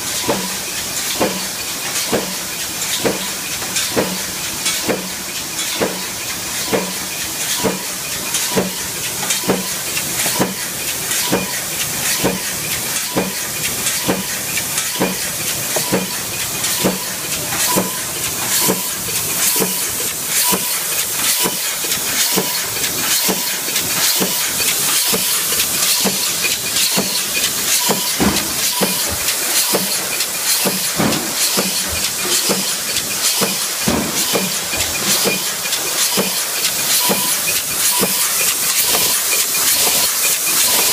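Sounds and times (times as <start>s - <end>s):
punch press stamping: 30.6s - 35.5s.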